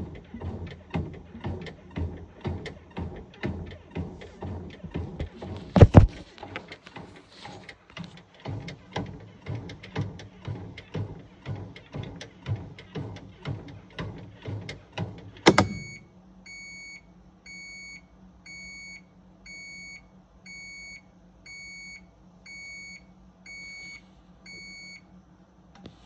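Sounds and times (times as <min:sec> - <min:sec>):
rhythmic thumps: 0:00.0 - 0:16.0
washing machine beeping: 0:00.0 - 0:25.1
loud clunk: 0:00.2 - 0:06.4, 0:08.4 - 0:16.0.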